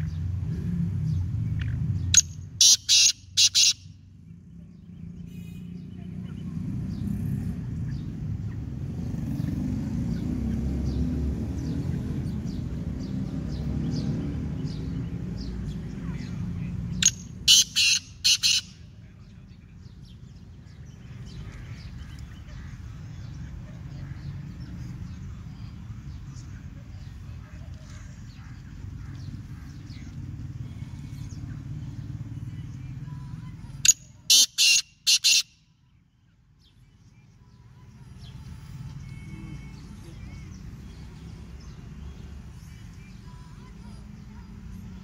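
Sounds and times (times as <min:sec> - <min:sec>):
bird calling loud notes: 0:02.1 - 0:04.0, 0:17.0 - 0:18.9, 0:33.9 - 0:35.6.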